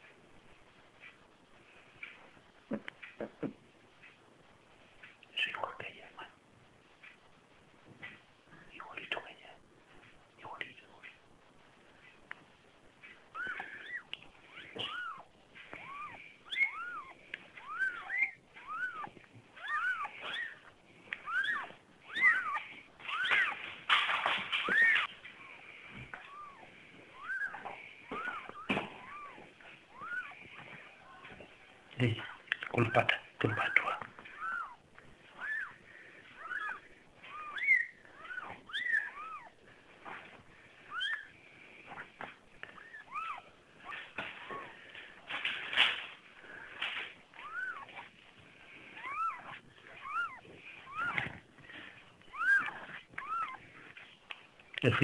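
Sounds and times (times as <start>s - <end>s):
kittens mewing: 13.3s - 25.2s, 25.9s - 31.5s, 32.2s - 46.0s, 46.6s - 48.2s, 48.8s - 54.0s.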